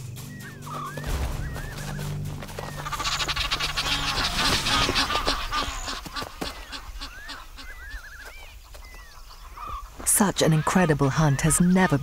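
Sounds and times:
rapid wing fluttering: 0:00.4 - 0:07.3
geese honking: 0:00.4 - 0:12.0.

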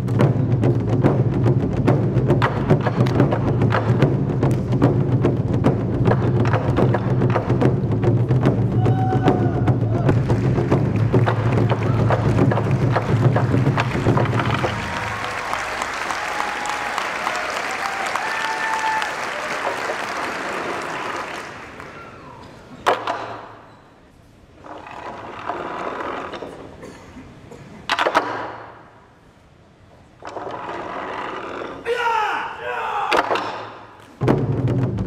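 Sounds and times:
crowd applauding and cheering: 0:08.7 - 0:22.7
crowd noise: 0:08.8 - 0:24.2.

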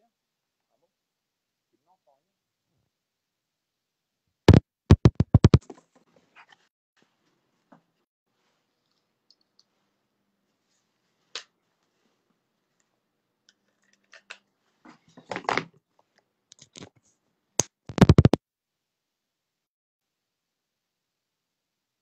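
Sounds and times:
sharp tap: 0:04.5 - 0:05.6.

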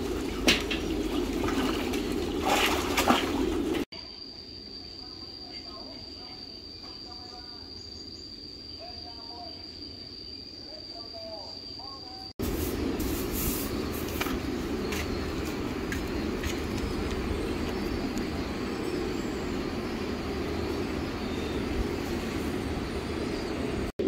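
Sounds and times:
low mechanical rumble: 0:12.4 - 0:24.0.

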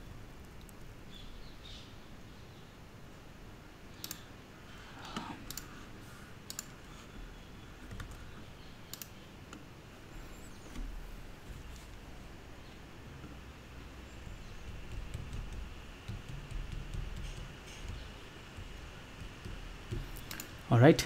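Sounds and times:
faint room noise: 0:00.0 - 0:21.0
computer mouse clicks: 0:04.0 - 0:04.3, 0:05.0 - 0:05.7, 0:06.4 - 0:06.8, 0:07.8 - 0:09.7, 0:14.7 - 0:20.6.

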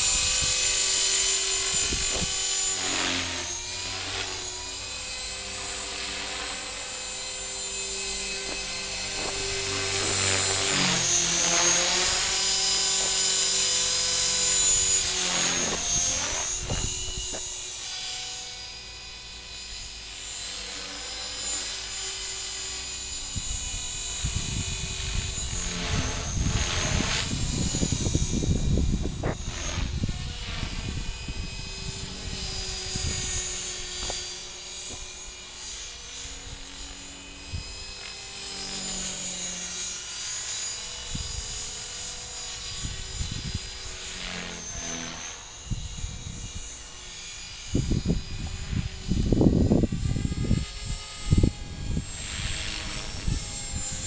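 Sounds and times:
wind buffeting microphone: 0:00.0 - 0:02.6, 0:15.0 - 0:17.5, 0:23.3 - 0:34.3, 0:42.6 - 0:43.9, 0:47.7 - 0:54.0
rc helicopter whine: 0:00.0 - 0:54.0.

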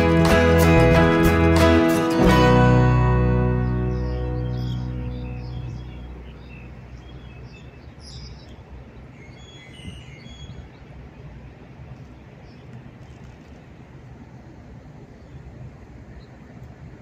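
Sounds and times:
guitar music: 0:00.0 - 0:07.0
low rumble of city noise: 0:00.0 - 0:17.0
small birds chirping: 0:02.9 - 0:13.8.

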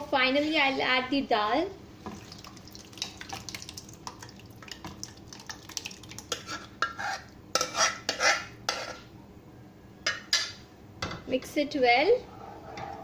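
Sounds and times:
metal spoon scraping steel vessel: 0:06.3 - 0:09.0.

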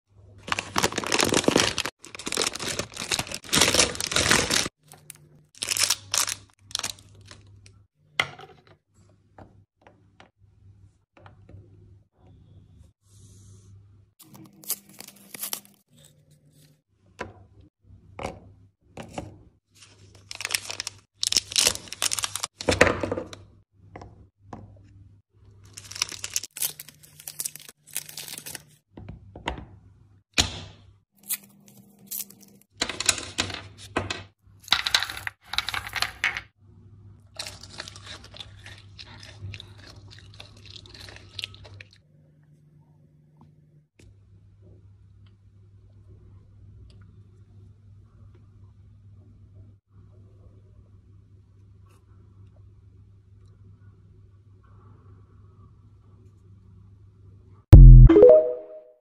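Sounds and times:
wrappers crinkling and tearing: 0:00.4 - 0:07.5, 0:14.2 - 0:16.1, 0:19.8 - 0:22.6, 0:25.7 - 0:28.8
wrapper snaps: 0:00.5 - 0:07.7.

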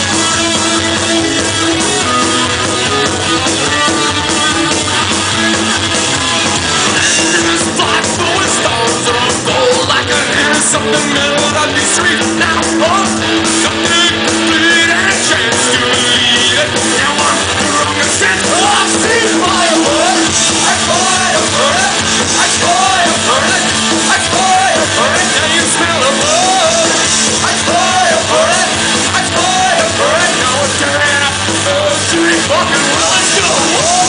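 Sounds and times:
punk rock band playing live: 0:00.0 - 0:34.0
man singing: 0:06.8 - 0:34.0.

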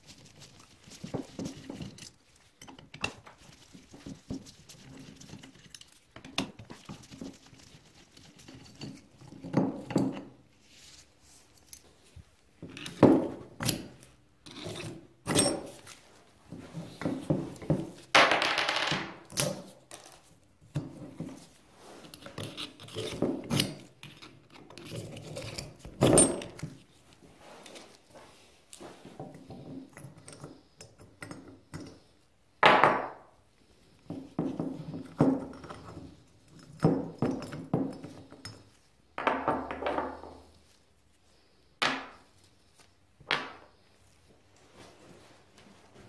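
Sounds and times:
metal tools clinking on workbench: 0:14.5 - 0:15.8.

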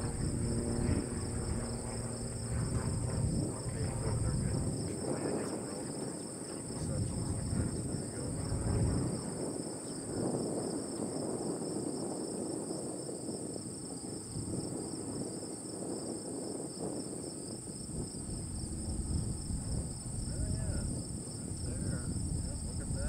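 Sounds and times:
low rumbling outdoor noise: 0:00.0 - 0:10.7, 0:17.7 - 0:23.0
crickets and insects trilling: 0:00.0 - 0:23.0.

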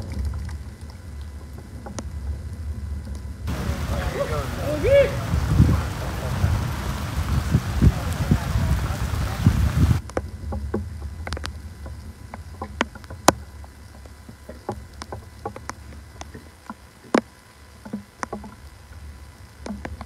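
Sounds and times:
low steady hum: 0:00.0 - 0:20.0
microphone handling clicks and knocks: 0:09.5 - 0:18.6.

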